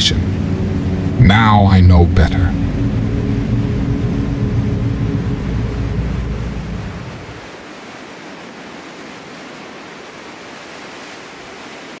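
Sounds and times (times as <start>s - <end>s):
low rumble: 0.0s - 7.7s
wind rushing: 0.0s - 7.9s.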